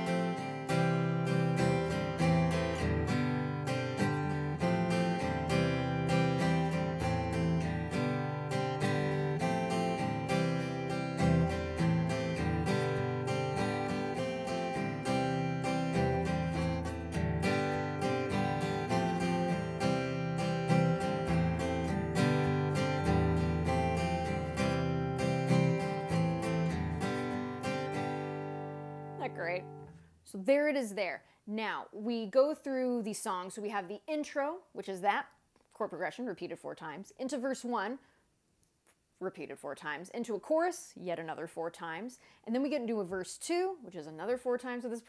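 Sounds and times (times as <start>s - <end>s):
acoustic guitar strummed: 0.0s - 30.2s.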